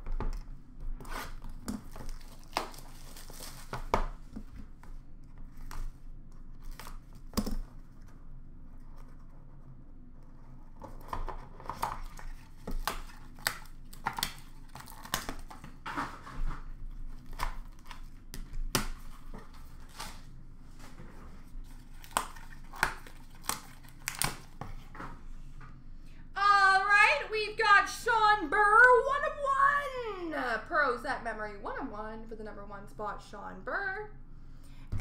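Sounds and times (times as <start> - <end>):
cardboard tearing: 1.0 - 4.0, 10.9 - 18.1, 21.6 - 24.9
wrapping crinkling: 1.1 - 4.3, 10.4 - 18.2, 21.5 - 24.9.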